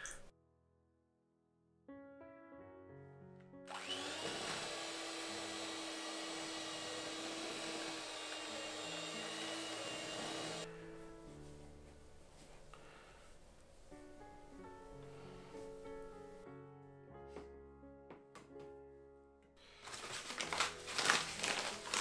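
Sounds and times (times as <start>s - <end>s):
electric hand mixer whining: 3.7s - 10.7s.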